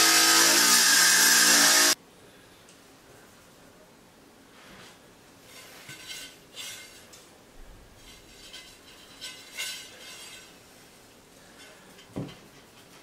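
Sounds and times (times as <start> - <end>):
tile scraping and clinking: 5.5 - 7.2, 8.0 - 10.6.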